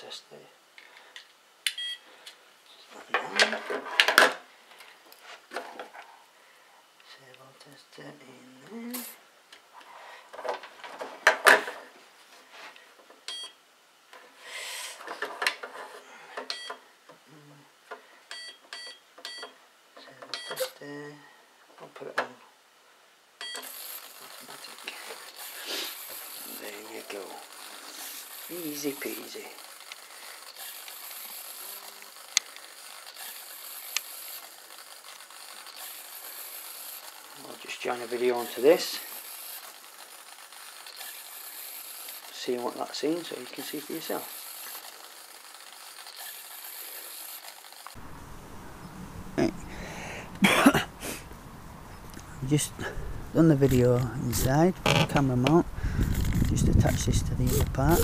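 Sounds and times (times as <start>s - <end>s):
faint hiss: 0.0s - 18.3s, 19.9s - 58.0s
servo buzzing hum: 23.4s - 50.0s.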